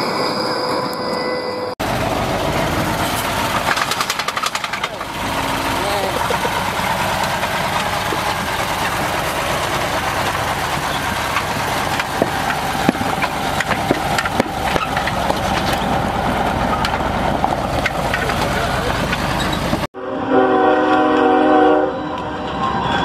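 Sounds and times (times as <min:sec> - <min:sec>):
truck diesel engine idling: 0:01.8 - 0:19.9.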